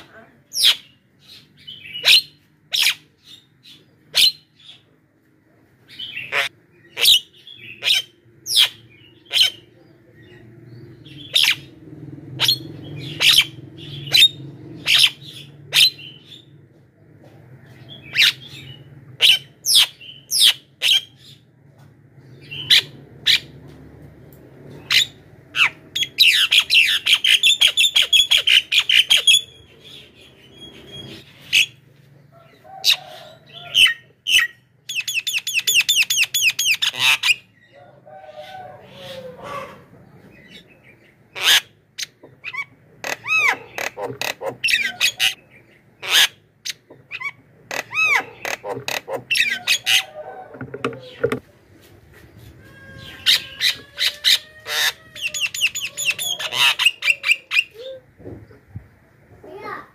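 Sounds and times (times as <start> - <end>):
bird calling and chattering: 40.3 - 51.4.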